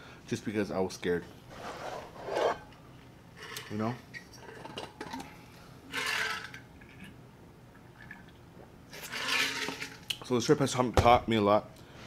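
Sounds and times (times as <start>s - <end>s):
liquid gulps: 6.8s - 8.7s.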